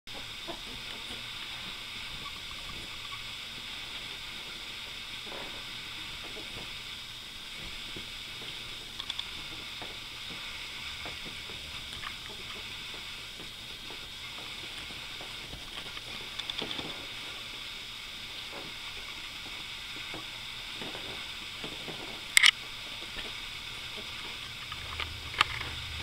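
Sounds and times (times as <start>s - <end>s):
steady hiss: 0.1s - 26.0s.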